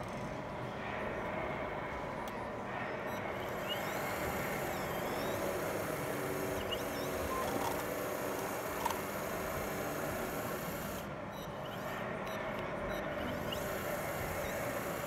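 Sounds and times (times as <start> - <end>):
excavator model motors whirring: 3.1 - 15.0.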